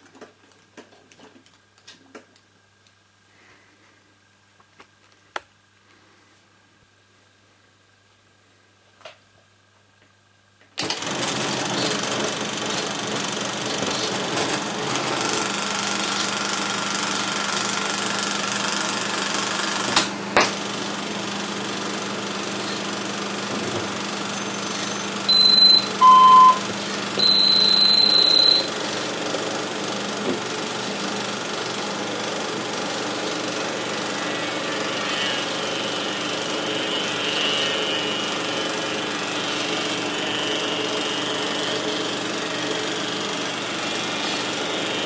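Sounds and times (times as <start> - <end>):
film projector running: 10.8 - 45.0
beeping tones through amplifier: 25.3 - 26.6, 27.2 - 28.7.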